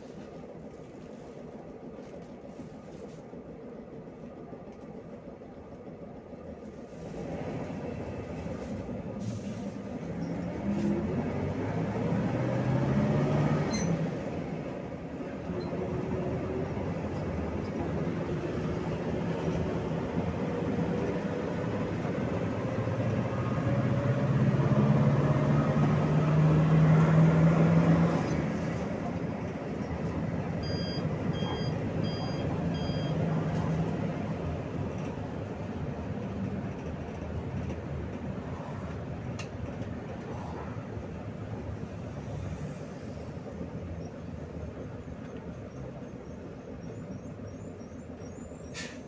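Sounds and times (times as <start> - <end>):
bus engine under load: 0.0 - 49.0
short electronic beeps: 30.6 - 33.2.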